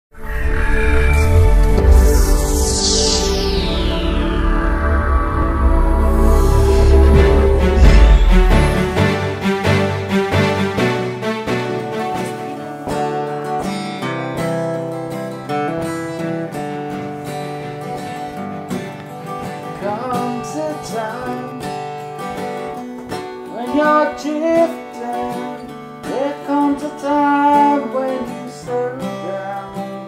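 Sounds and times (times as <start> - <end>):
acoustic guitar strumming: 5.6 - 30.0
person singing: 19.8 - 21.8, 23.5 - 30.0.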